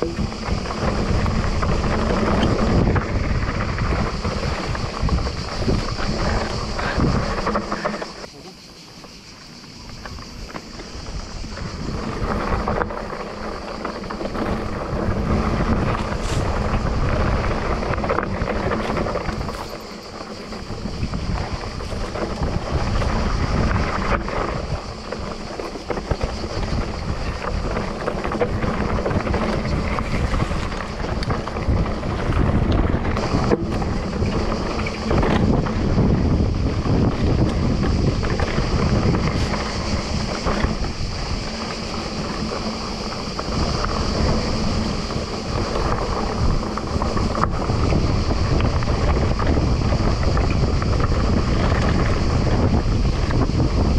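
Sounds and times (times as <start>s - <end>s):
bike rattling and knocking: 0.0s - 53.9s
tyres rolling on dirt: 0.0s - 53.9s
wind buffeting microphone: 0.0s - 53.9s.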